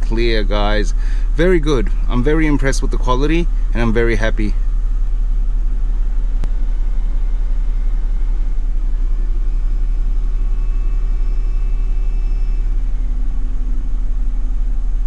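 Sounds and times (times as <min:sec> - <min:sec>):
car engine idling: 0:00.0 - 0:15.0
faint high tone: 0:06.6 - 0:15.0.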